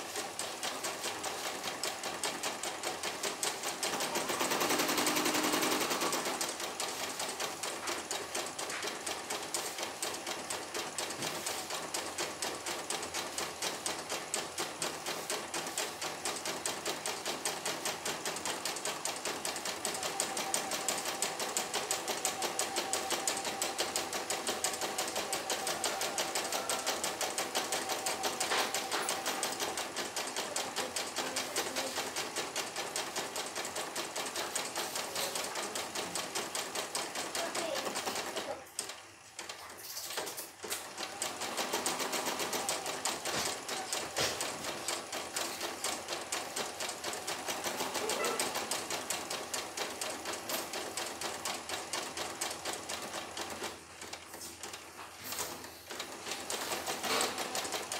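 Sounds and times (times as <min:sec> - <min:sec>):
embroidery machine stitching: 0:00.0 - 0:57.9.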